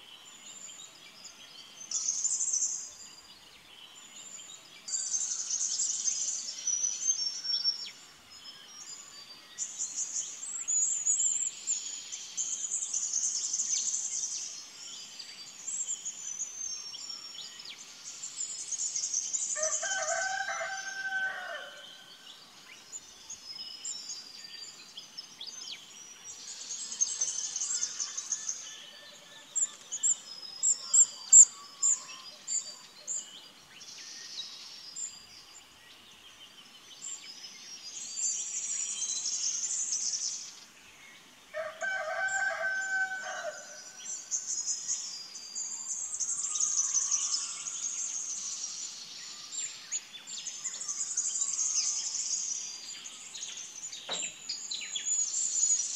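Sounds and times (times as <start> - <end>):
songbirds chirping and trilling: 0.0 - 55.9
rooster crowing: 19.6 - 22.0, 41.6 - 43.8.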